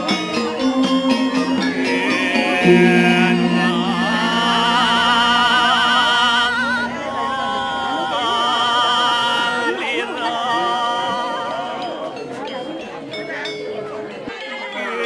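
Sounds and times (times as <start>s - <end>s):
music backing: 0.0s - 8.6s
person singing with vibrato: 0.8s - 9.6s.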